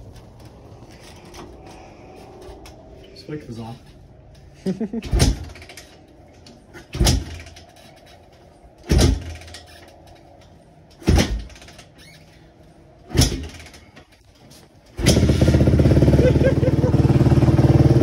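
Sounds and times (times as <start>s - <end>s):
engine kick-start turning over: 15.0s - 16.4s.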